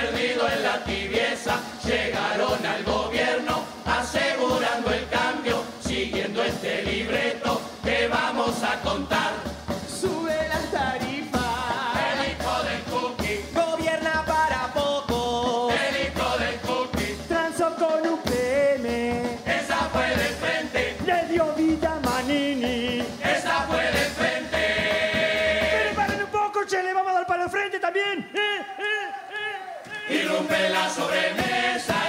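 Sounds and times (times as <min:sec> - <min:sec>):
chorus singing in harmony: 0:00.0 - 0:13.6, 0:14.4 - 0:17.3, 0:19.2 - 0:21.3, 0:23.0 - 0:26.2, 0:29.3 - 0:32.0
drum kit beat: 0:00.0 - 0:26.9, 0:29.8 - 0:32.0.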